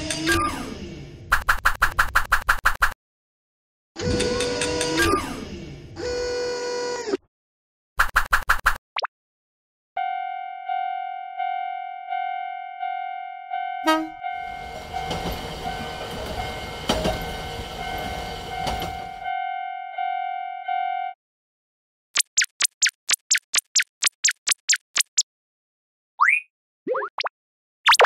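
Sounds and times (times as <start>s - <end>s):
level crossing alarm bell clanging: 10.0s - 21.2s
train horn toot: 13.8s - 20.1s
train rushing past: 14.3s - 19.3s.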